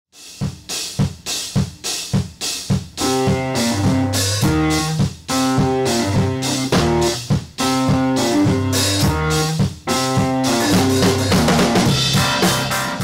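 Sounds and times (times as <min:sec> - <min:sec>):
band playing theme music: 0:02.9 - 0:13.0.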